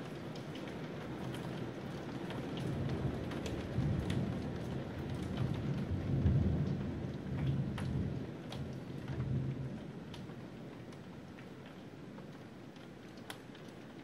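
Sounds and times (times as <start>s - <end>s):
raindrops tapping: 0.0s - 14.0s
thunder rumbling: 3.1s - 9.8s.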